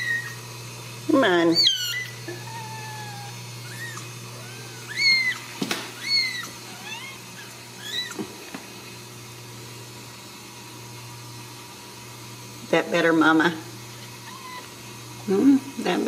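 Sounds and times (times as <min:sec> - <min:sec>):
kitten mewing: 0:01.4 - 0:08.3, 0:14.2 - 0:14.8.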